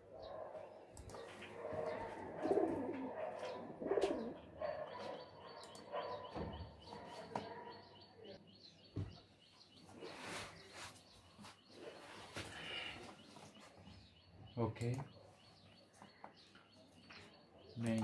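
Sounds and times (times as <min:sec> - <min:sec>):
small birds chirping: 0:00.0 - 0:18.0
pigeon cooing: 0:01.2 - 0:06.3
sharp clicks: 0:05.6 - 0:06.2, 0:14.8 - 0:15.2, 0:17.8 - 0:18.0.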